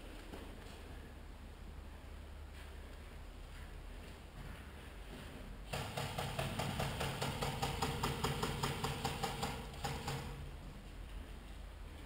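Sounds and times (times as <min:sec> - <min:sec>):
airsoft gun full-auto burst: 0:05.7 - 0:10.4.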